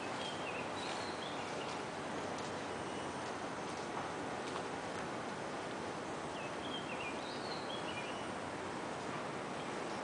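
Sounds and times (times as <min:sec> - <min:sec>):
steady background hiss: 0:00.0 - 0:10.0.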